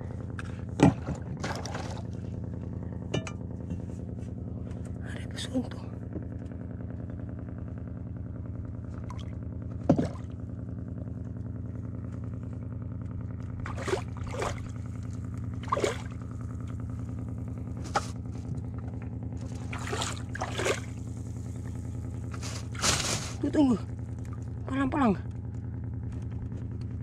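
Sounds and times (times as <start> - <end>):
boat engine idling: 0.0 - 27.0
knocks and clatters: 3.1 - 3.9.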